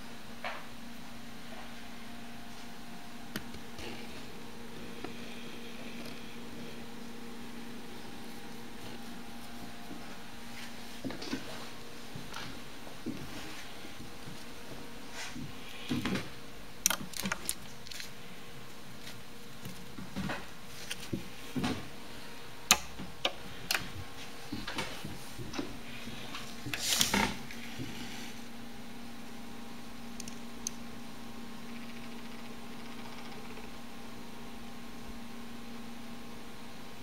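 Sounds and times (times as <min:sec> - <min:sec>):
faint steady hum: 0:00.0 - 0:37.0
gerbils scrabbling in bedding: 0:03.6 - 0:22.3.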